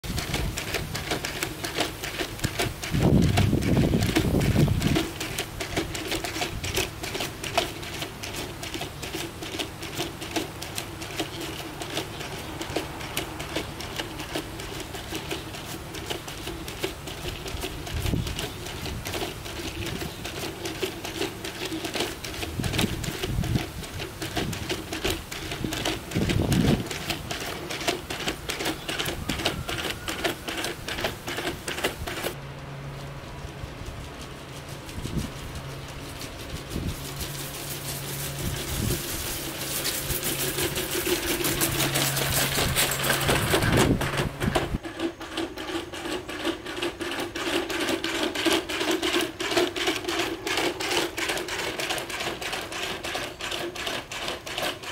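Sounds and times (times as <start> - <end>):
robot feet clicking and tapping: 0.0 - 7.7, 21.0 - 32.4
motor hum: 0.0 - 54.9.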